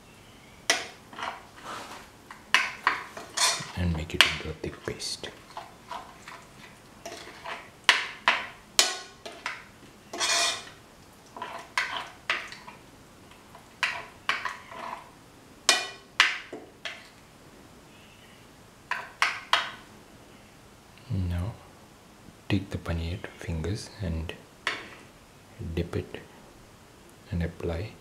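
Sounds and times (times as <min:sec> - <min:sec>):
spoon clinking and scraping bowl: 0:02.6 - 0:04.4, 0:05.5 - 0:10.8, 0:11.4 - 0:12.8, 0:13.8 - 0:15.0.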